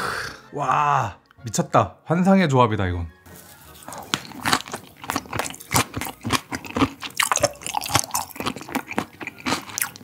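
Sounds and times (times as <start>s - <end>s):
person chewing with mouth clicks: 3.7s - 10.0s.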